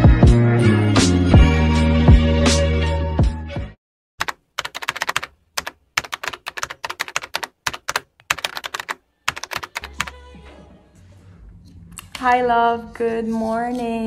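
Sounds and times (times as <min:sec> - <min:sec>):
keyboard typing clicks: 0:04.2 - 0:10.1.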